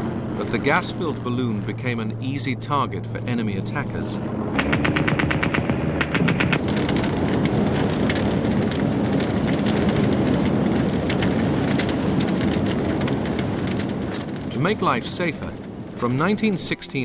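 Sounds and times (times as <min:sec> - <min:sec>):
rumbling roar with low drone: 0:00.0 - 0:16.4
machine-gun fire: 0:04.6 - 0:14.3
scattered crackles: 0:04.6 - 0:17.0.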